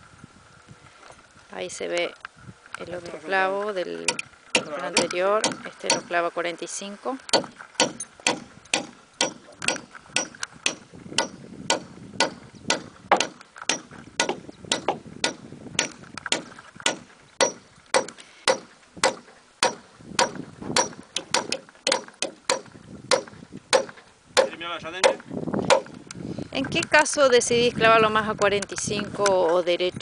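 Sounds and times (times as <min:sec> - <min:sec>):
hammer driving nail into wood: 0:07.3 - 0:25.9.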